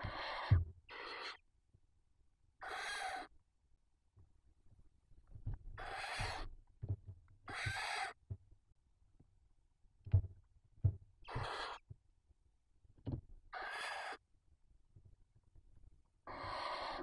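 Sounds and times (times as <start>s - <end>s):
owl chicks hissing calls: 0.0s - 1.4s, 2.6s - 3.3s, 5.8s - 6.5s, 7.5s - 8.2s, 11.2s - 11.8s, 13.5s - 14.2s, 16.2s - 17.0s.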